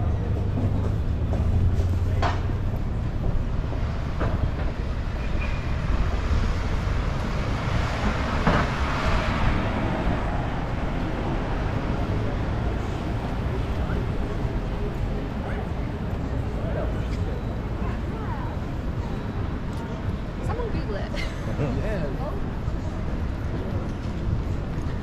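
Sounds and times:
road traffic rumble: 0.0 - 25.0.

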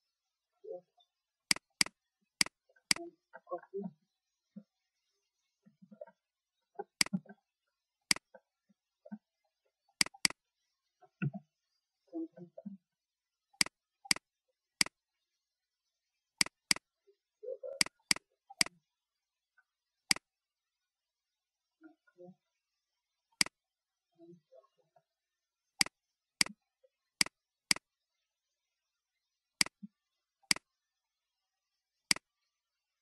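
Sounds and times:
computer mouse button clicks: 10.0 - 10.4.

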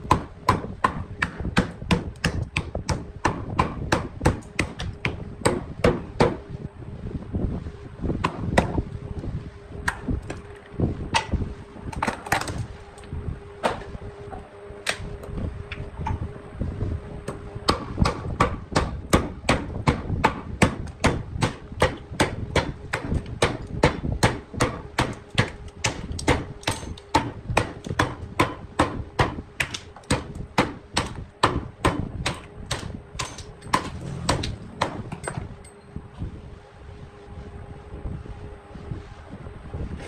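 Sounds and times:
hammering on wood: 0.0 - 6.4, 17.7 - 35.3
faint steady hum: 0.0 - 40.0.

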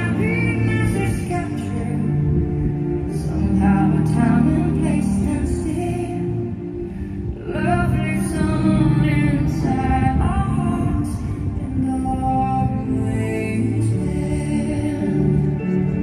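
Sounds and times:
show music with singing: 0.0 - 16.0.

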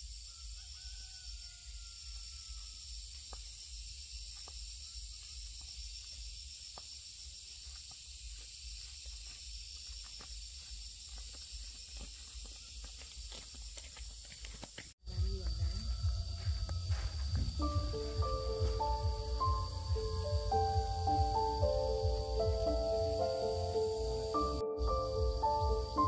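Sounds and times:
high-pitched insect chorus: 0.0 - 26.0.

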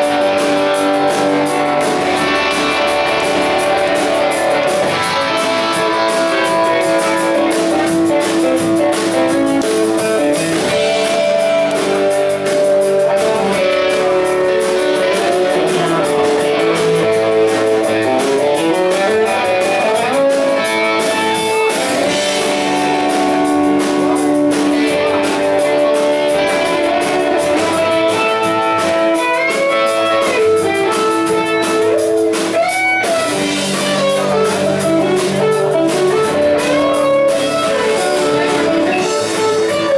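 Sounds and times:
drums: 0.0 - 39.9
electric guitar lead: 0.0 - 39.9
rhythm guitar: 0.0 - 39.9.

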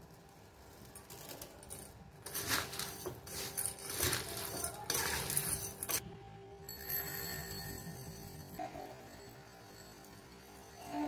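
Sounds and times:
metal spoon stirring dry snacks: 0.8 - 6.0.

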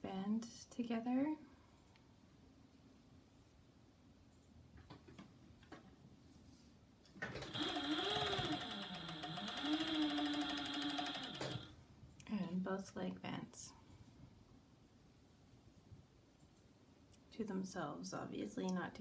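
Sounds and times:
serger sewing machine running: 7.4 - 11.7.

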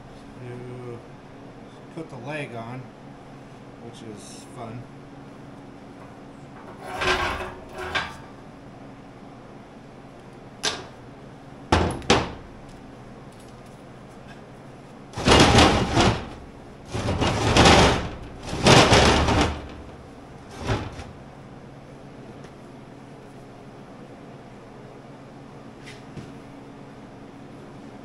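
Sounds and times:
steel parts clanking on steel: 6.5 - 8.3
steel scraping across steel: 6.6 - 8.4.

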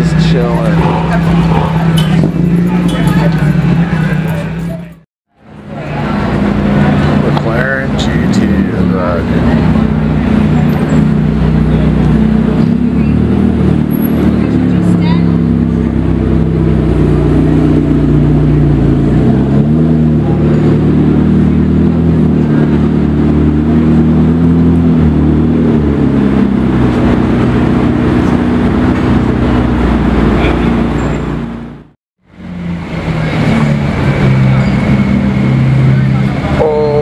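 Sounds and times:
car engines rumbling at low revs: 0.0 - 37.0.

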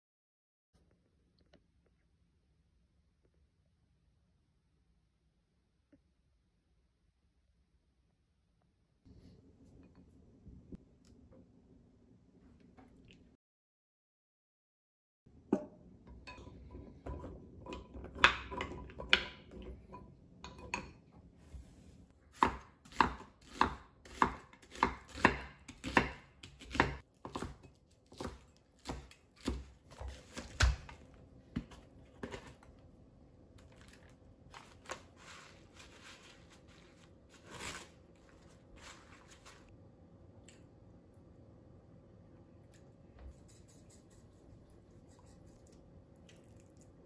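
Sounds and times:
knife chopping on wooden board: 22.3 - 32.4
paper rustling: 33.6 - 39.7.

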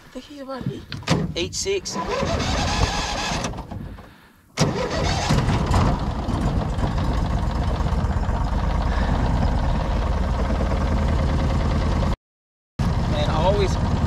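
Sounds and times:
engine starting and idling: 1.9 - 12.2.

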